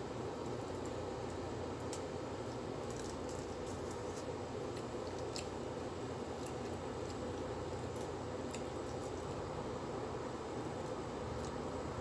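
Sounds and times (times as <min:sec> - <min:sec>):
room hum: 0:00.0 - 0:12.0
fingers picking at food: 0:00.3 - 0:09.5
chewing: 0:01.9 - 0:05.6, 0:06.3 - 0:09.4.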